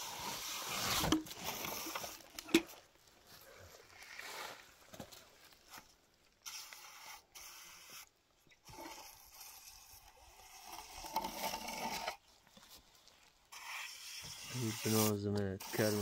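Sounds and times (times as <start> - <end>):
hand tool scraping wet cement: 8.7 - 12.2, 13.5 - 16.0.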